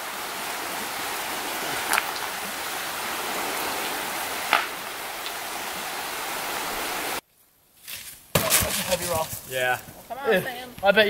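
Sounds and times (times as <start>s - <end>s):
creek water flowing: 0.0s - 7.2s.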